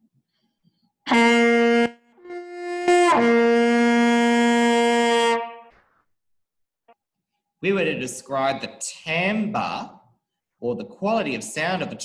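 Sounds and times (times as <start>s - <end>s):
solo trumpet: 1.1s - 5.7s.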